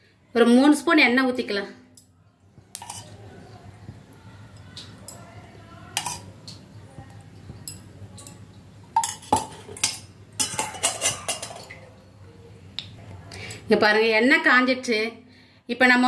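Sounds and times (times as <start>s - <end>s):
metal utensils clinking on pots: 2.7s - 3.2s, 4.9s - 6.6s, 7.6s - 12.0s.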